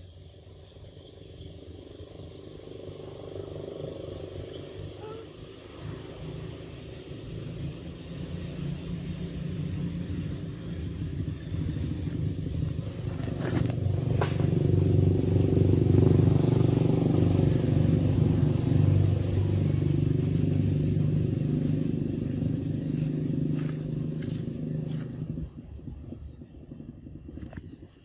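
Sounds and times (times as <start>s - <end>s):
motor engine humming: 1.4s - 27.6s.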